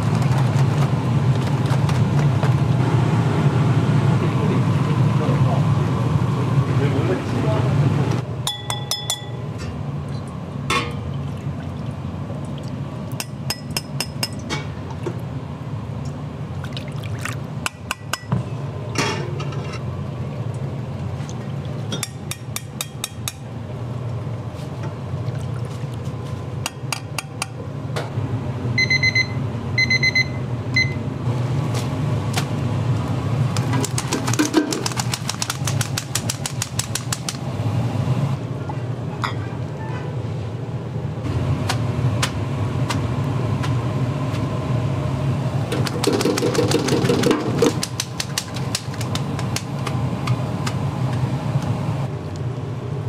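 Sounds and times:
low kitchen hum: 0.0s - 53.0s
short electronic beeps: 28.8s - 31.0s.

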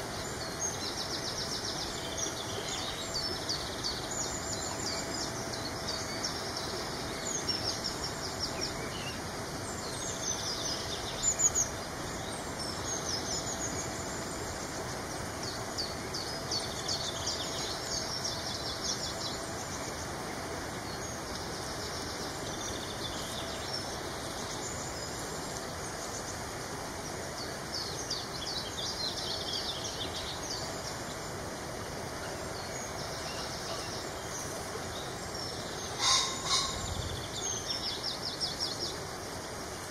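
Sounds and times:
steady background hiss: 0.0s - 39.9s
birds chirping and trilling: 27.6s - 39.0s.

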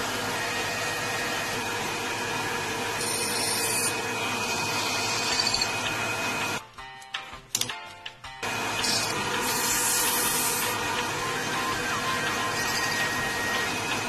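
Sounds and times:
lathe machine whine: 0.0s - 6.6s, 8.4s - 14.0s
tool cutting metal: 2.7s - 6.6s, 8.8s - 14.0s.

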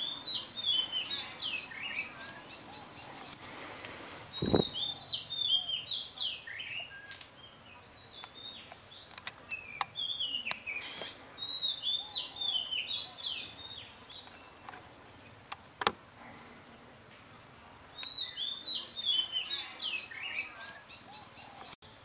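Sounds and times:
small bird chirping: 4.3s - 15.4s.

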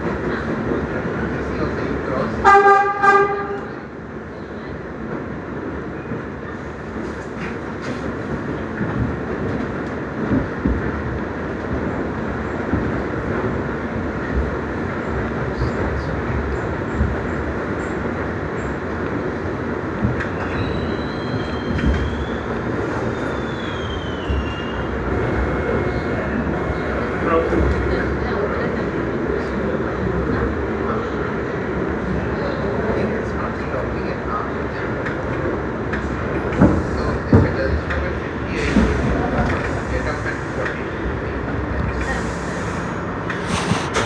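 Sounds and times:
wheels rumbling on rail: 0.0s - 44.0s.

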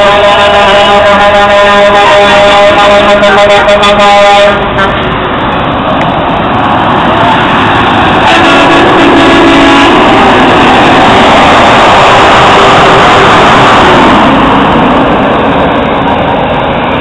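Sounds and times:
truck horn: 0.0s - 5.3s, 8.1s - 14.0s
heavy trucks driving past: 0.0s - 17.0s.

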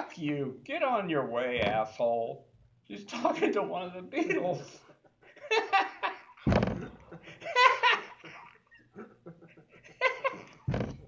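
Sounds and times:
dull thumps: 1.5s - 2.1s, 6.4s - 7.2s, 10.6s - 11.0s
man laughing: 4.2s - 10.7s.

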